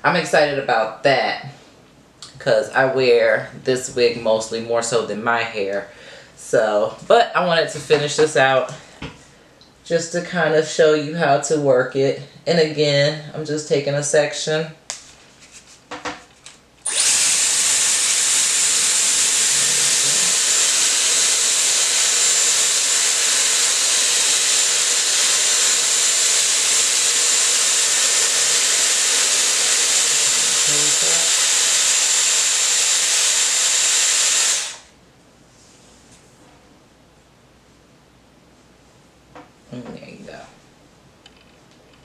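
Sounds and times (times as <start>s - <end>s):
hair styler fan whine: 16.8s - 35.0s.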